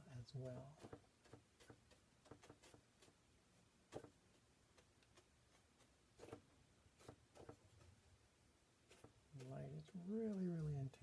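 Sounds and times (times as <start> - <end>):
brush tapping on panel: 0.5 - 3.2, 3.9 - 7.9, 8.9 - 11.0.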